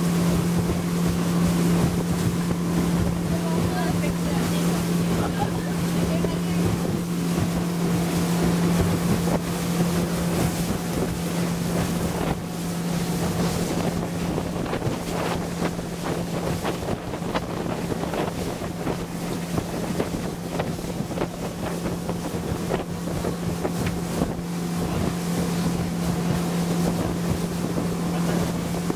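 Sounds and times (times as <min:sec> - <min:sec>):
motorboat engine droning: 0:00.0 - 0:28.9
water rushing past hull: 0:00.0 - 0:28.9
wind buffeting microphone: 0:00.0 - 0:28.9.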